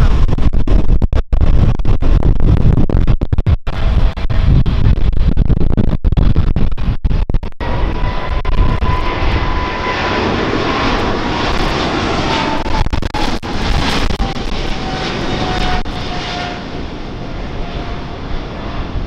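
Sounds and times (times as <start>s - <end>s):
whine sliding down in pitch: 6.8s - 18.8s
jet airliner passing overhead: 7.6s - 19.0s.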